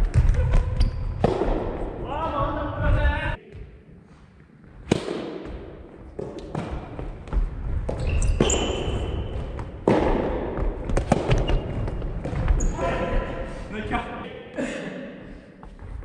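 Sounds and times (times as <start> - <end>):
racket hitting ball with echo: 0.0 - 2.1, 4.8 - 12.6
shoes squeaking on floor: 0.4 - 1.2, 7.9 - 9.8, 11.1 - 13.1
ball bouncing on wooden floor: 5.0 - 12.7.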